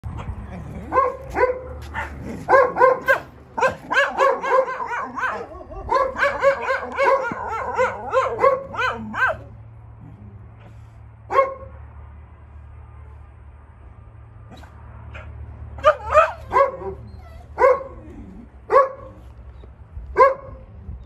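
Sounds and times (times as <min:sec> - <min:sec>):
dog barking: 0:00.9 - 0:09.5, 0:11.3 - 0:11.8, 0:14.5 - 0:18.0, 0:18.7 - 0:19.2, 0:20.1 - 0:20.7.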